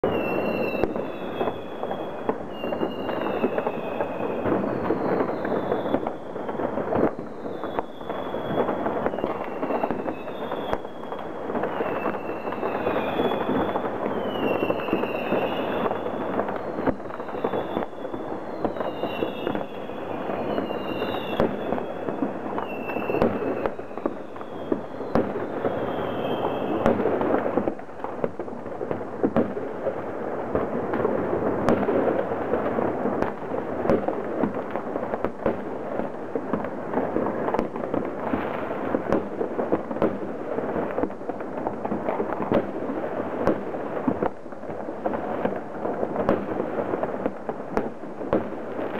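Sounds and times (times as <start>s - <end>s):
high falling whistles: 0.0s - 26.9s
fireworks bangs and crackling: 0.0s - 48.9s.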